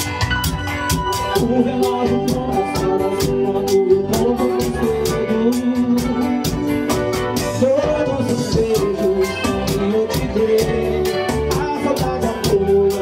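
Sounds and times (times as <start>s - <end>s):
drums: 0.0s - 13.0s
electric guitar: 0.0s - 13.0s
man singing into a microphone: 1.1s - 13.0s.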